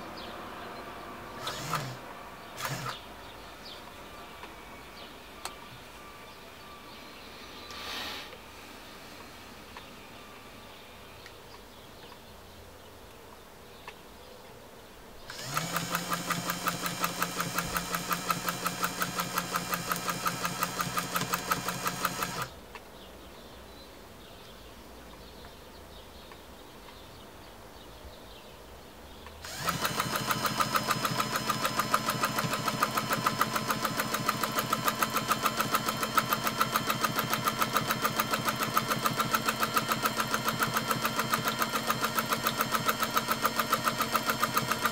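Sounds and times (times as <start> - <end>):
sewing machine stitching: 1.4 - 2.0, 2.6 - 3.0, 15.3 - 22.6, 29.4 - 44.9.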